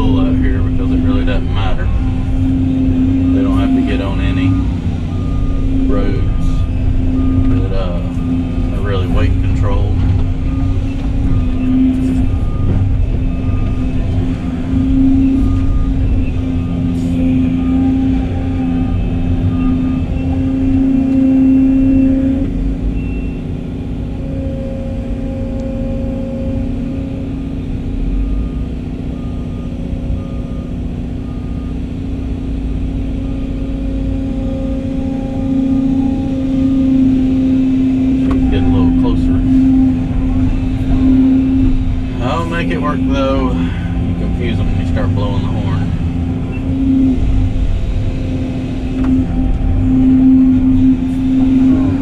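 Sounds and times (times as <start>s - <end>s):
excavator engine and hydraulics: 0.0s - 52.0s
faint high beep: 3.1s - 23.4s.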